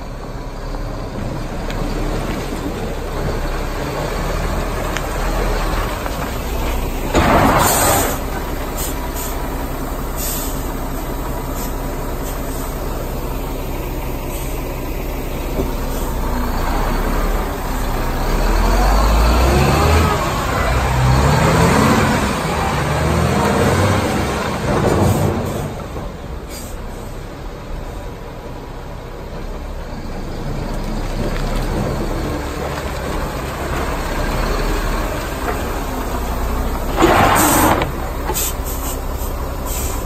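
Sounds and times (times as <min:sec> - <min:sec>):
diesel truck engine running: 0:00.0 - 0:40.0
air brake hiss: 0:08.8 - 0:09.5, 0:10.2 - 0:10.8, 0:11.5 - 0:12.8, 0:14.3 - 0:14.7, 0:26.5 - 0:27.1, 0:37.1 - 0:40.0.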